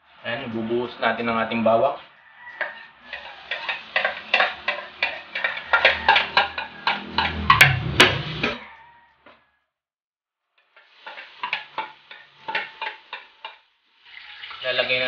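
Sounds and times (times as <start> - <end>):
spoon tapping on a plate: 2.6 - 7.8.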